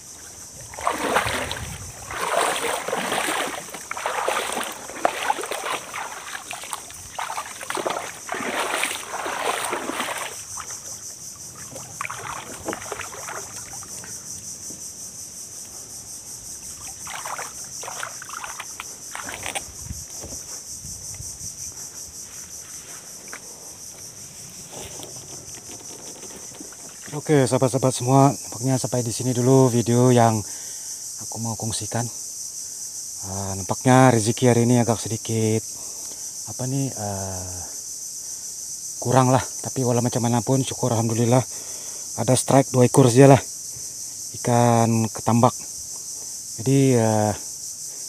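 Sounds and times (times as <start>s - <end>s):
paddle splashing water: 0.0s - 14.2s, 16.6s - 19.7s, 24.5s - 27.3s
insects droning: 0.0s - 48.0s.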